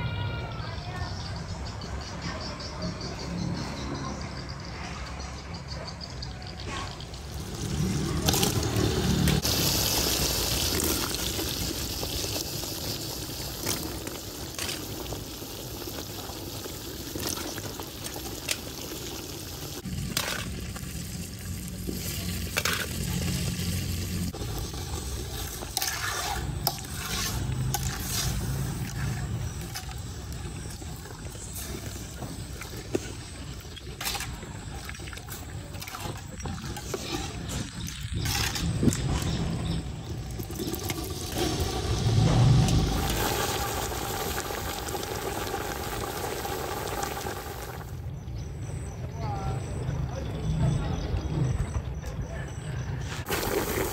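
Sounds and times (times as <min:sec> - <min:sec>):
wet sloshing and stirring: 0:24.4 - 0:47.8.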